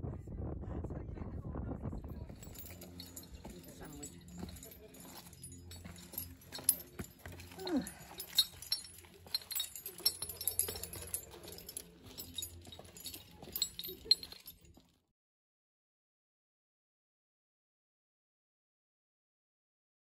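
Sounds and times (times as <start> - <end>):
climbing hardware clinking: 2.3 - 14.8.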